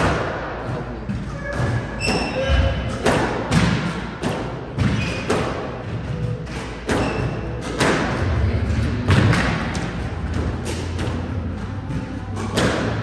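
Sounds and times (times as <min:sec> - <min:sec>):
squash ball hits: 0:00.0 - 0:13.0
sneakers squeaking on wooden floor: 0:01.1 - 0:03.0, 0:04.8 - 0:07.8.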